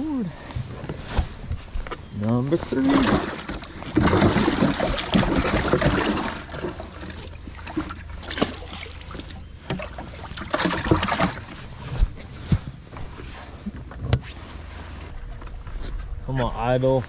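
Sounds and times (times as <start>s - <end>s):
water splashing in livewell: 2.6s - 12.0s.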